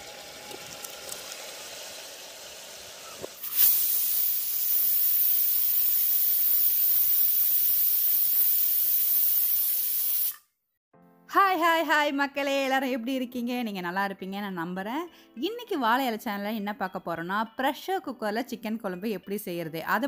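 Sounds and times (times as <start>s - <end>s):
pressure cooker steam hiss: 0.0s - 10.5s.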